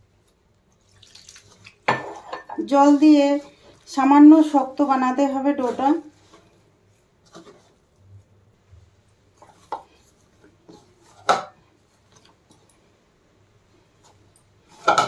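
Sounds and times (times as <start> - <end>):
hand kneading dough: 2.7 - 12.5.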